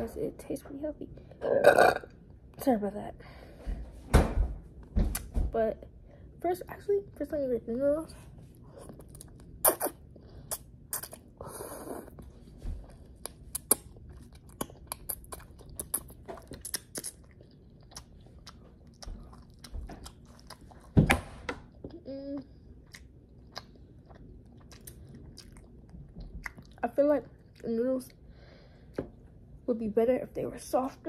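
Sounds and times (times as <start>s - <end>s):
person chewing noodles: 8.5s - 21.0s, 21.6s - 26.8s
wet mouth clicks: 8.8s - 11.2s, 13.2s - 13.9s.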